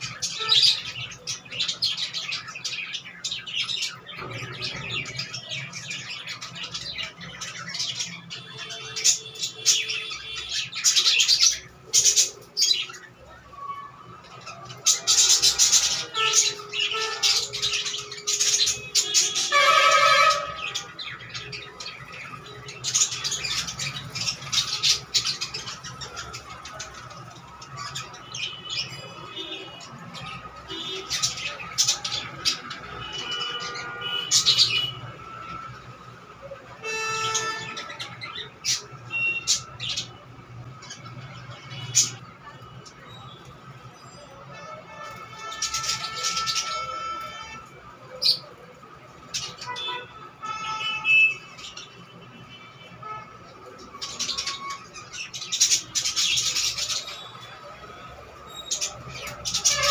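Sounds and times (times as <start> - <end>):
budgerigars chirping: 0.0 - 13.4, 14.3 - 29.4.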